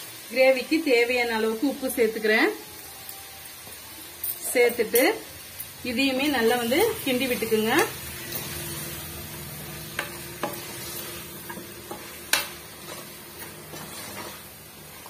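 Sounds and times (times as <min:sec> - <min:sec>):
low sizzle of frying: 0:00.0 - 0:15.0
ladle stirring in a pot: 0:09.9 - 0:15.0.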